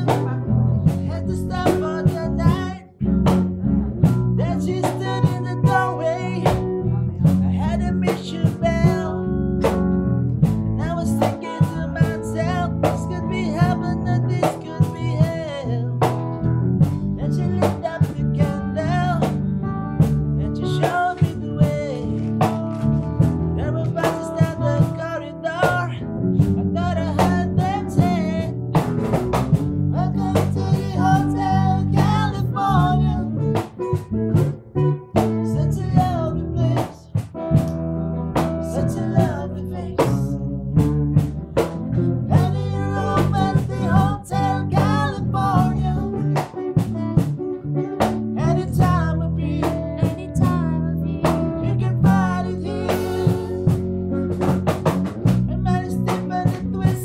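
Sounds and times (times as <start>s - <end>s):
drum beat: 0.0s - 9.1s, 22.4s - 23.4s, 24.0s - 25.0s, 27.2s - 33.0s, 40.8s - 45.7s, 51.3s - 57.0s
electric bass: 0.0s - 57.0s
guitar: 0.0s - 57.0s.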